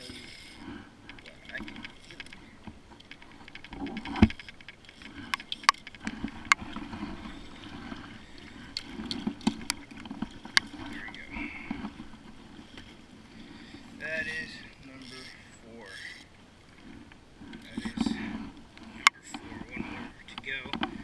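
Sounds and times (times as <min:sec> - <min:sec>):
gear knocking against kayak hull: 0:01.1 - 0:12.9.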